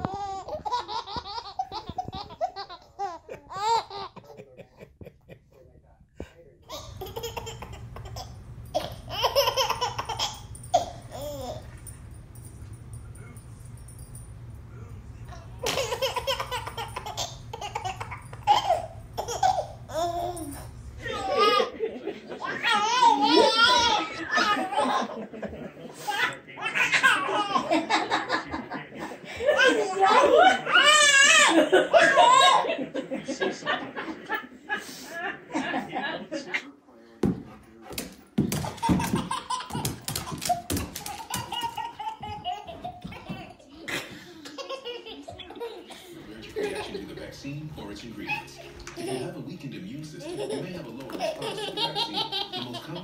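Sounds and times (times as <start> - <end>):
baby laughing: 0.0 - 5.3, 6.6 - 11.9, 15.3 - 25.3, 26.0 - 28.4, 29.5 - 32.7, 38.5 - 49.6, 50.2 - 53.0
dog claws scrabbling on tile: 37.5 - 42.8.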